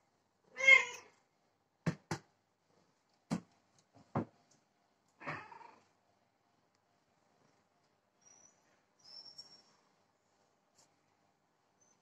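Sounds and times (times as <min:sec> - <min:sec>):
cat meowing: 0:00.5 - 0:01.1.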